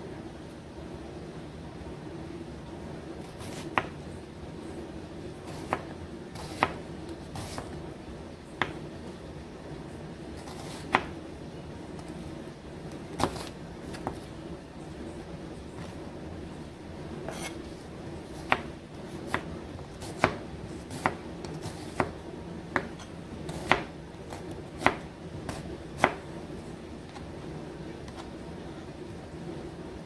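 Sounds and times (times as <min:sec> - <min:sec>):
knife tapping cutting board: 0:22.7 - 0:23.8.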